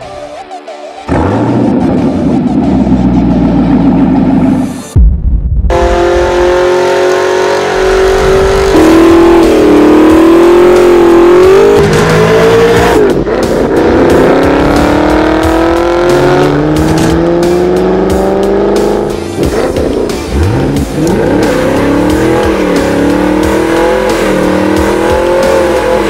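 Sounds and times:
car engine revving hard: 5.7 - 26.0.

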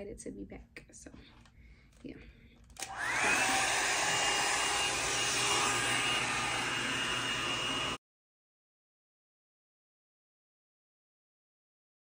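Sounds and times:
hot air brush running: 2.8 - 8.0.

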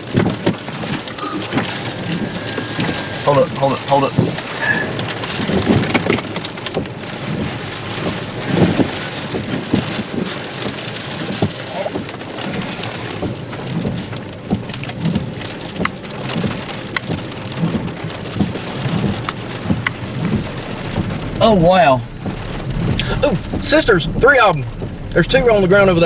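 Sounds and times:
raindrops ticking on car glass: 0.0 - 26.0
low rumble: 0.6 - 8.8, 18.1 - 26.0.

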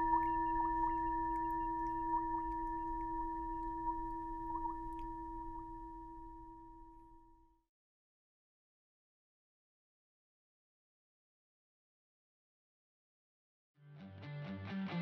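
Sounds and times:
electronic drone of pure tones: 0.0 - 7.0.

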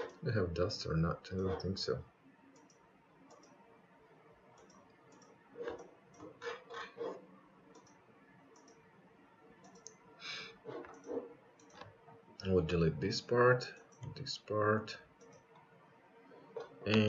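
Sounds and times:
computer mouse clicking: 2.5 - 3.6, 4.5 - 6.3, 7.7 - 8.8, 9.6 - 10.0, 10.7 - 11.9, 15.2 - 15.6.

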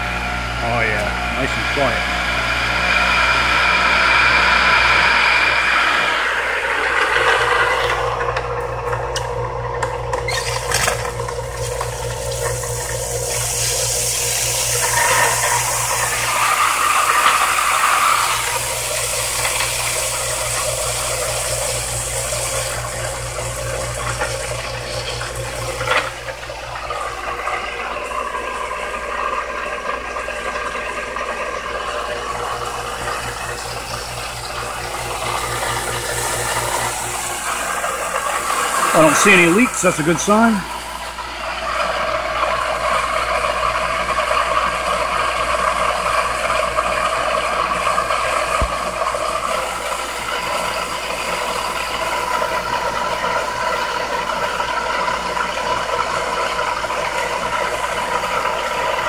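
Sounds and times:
pump motor hum: 0.0 - 59.0
water spraying hard: 11.6 - 25.9, 32.1 - 42.8.

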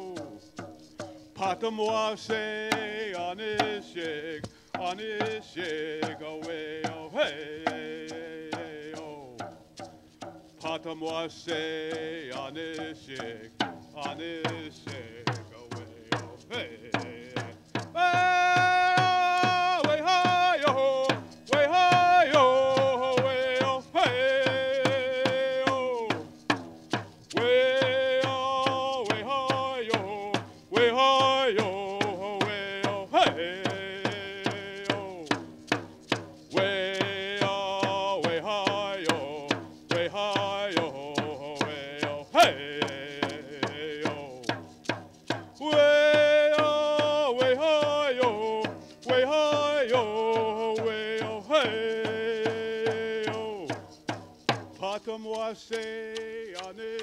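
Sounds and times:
frame drum beat: 0.0 - 57.0
chant with long held notes: 18.0 - 26.1, 27.3 - 35.3, 45.6 - 53.6.

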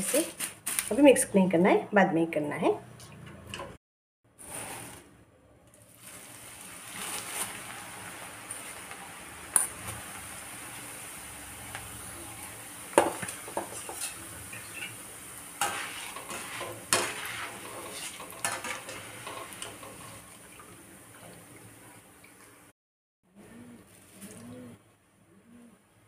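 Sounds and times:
food sizzling in hot oil: 5.9 - 21.1
skimmer scraping steel pan: 15.6 - 20.3.

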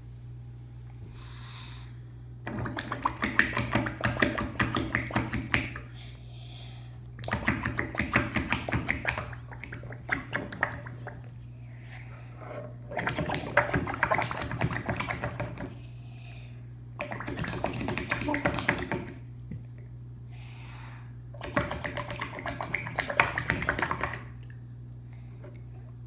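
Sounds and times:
slime bubbling and popping: 7.2 - 11.3, 12.9 - 15.6, 21.4 - 24.5.

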